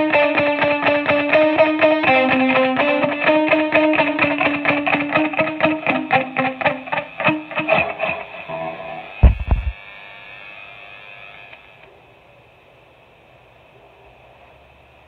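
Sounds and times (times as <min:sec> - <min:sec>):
distorted electric guitar riff: 0:00.0 - 0:09.8
amplifier hiss: 0:02.9 - 0:10.0
loud low thump: 0:09.2 - 0:09.8.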